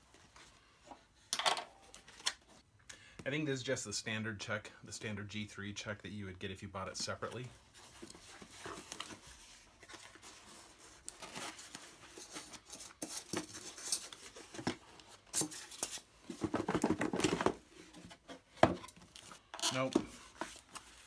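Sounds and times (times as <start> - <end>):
cardboard packaging rustling: 7.1 - 21.0.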